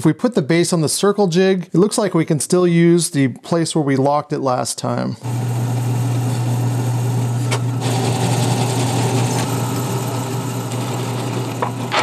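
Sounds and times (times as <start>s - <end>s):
drill bit boring into wood: 5.2s - 12.0s
drill press motor humming: 5.2s - 12.0s.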